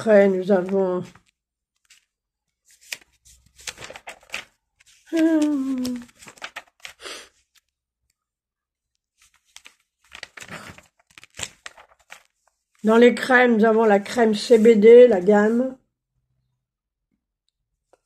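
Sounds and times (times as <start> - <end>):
paper pages rustling: 0.1 - 7.8, 9.0 - 15.6.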